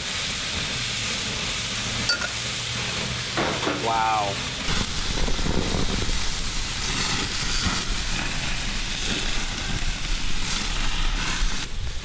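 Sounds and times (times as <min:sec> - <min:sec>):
chicken sizzling on a grill: 0:00.0 - 0:12.0
low rumble: 0:04.3 - 0:12.0.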